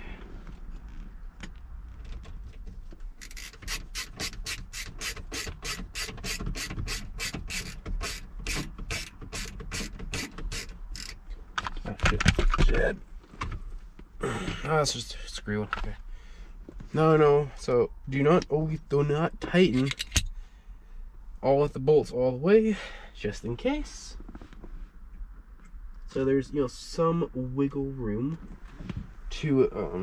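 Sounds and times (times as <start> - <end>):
ratchet wrench clicking: 3.2 - 11.2
tools scraping: 3.2 - 11.8, 19.6 - 20.3.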